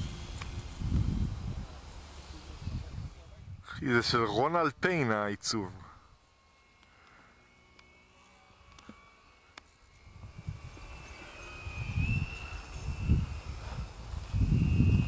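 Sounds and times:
wind buffeting microphone: 0.0 - 4.9, 10.0 - 15.0
model airplane motor whine: 0.0 - 15.0.

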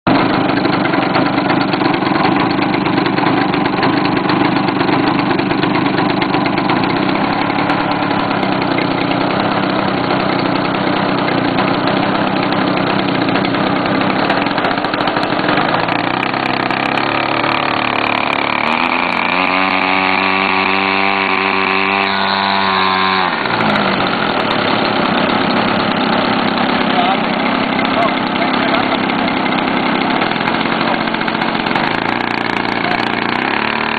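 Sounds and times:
model plane engine running: 0.1 - 33.9.

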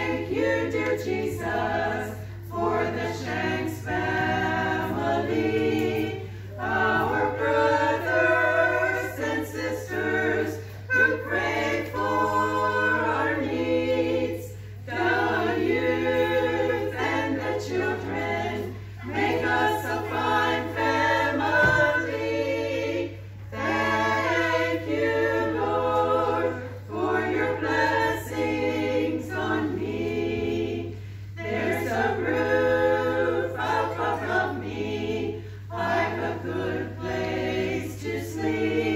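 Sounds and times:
women's choir singing unaccompanied: 0.0 - 38.9.

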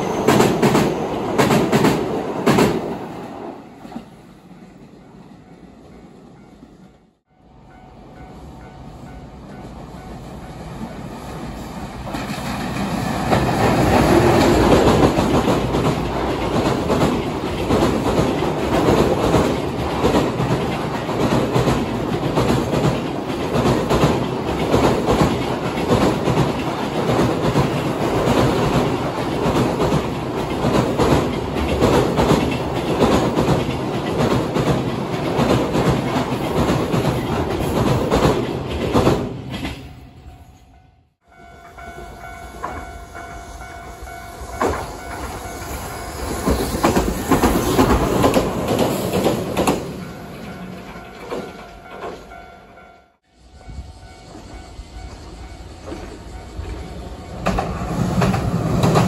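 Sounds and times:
train wheels clattering over rail joints: 12.0 - 39.9, 46.3 - 52.4.

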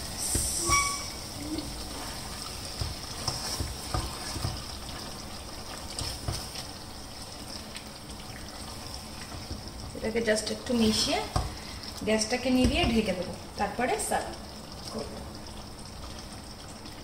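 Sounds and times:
metal ring: 0.6 - 1.2
spatula stirring thick gravy: 1.7 - 7.9.

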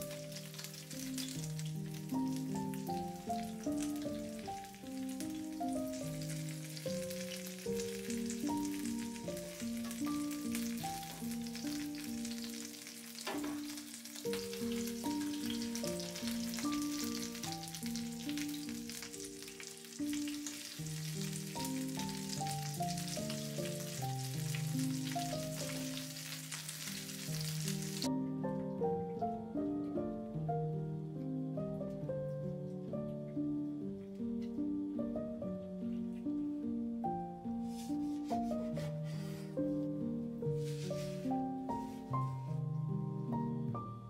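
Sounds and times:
oil sizzling in a pan: 0.0 - 28.5, 37.6 - 43.7
background music: 0.0 - 44.0.

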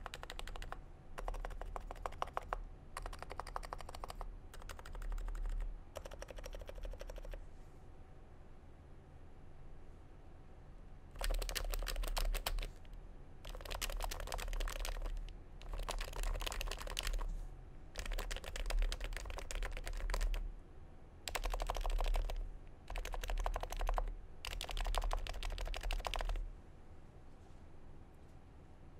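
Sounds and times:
fast typing on keyboard: 0.0 - 7.4, 11.2 - 17.3, 18.0 - 20.5, 21.3 - 26.5.

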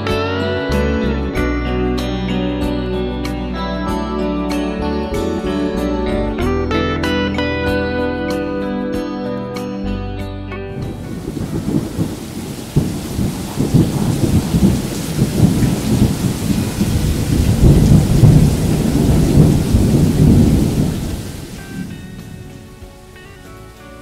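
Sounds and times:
thunder rumbling: 10.7 - 23.8
steady rain: 10.8 - 24.0.

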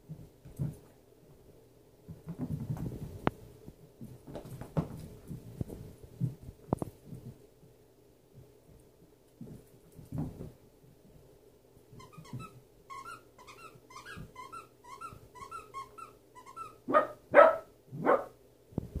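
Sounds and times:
squeaky dog toy squeaking: 12.0 - 17.1
dog barking loudly: 16.9 - 18.4.

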